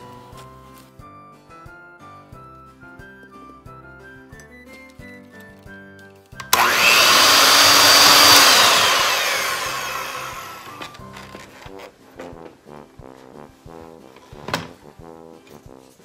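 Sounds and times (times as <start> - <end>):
electric hand mixer whirring: 6.5 - 11.0.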